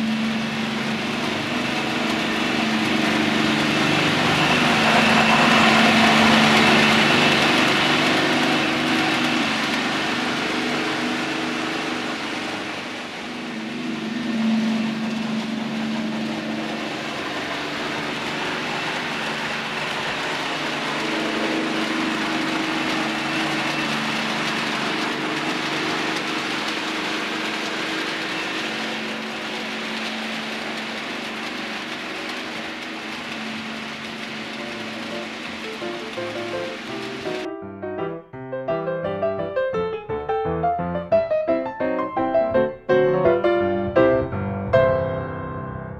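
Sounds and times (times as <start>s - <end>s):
model locomotive diesel drone: 0.0s - 37.5s
model train wheels rumbling: 0.0s - 37.5s.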